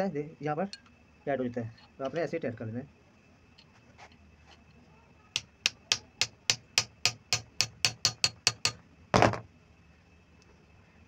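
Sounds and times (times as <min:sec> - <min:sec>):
metal rod tapping on metal: 0:05.4 - 0:08.8.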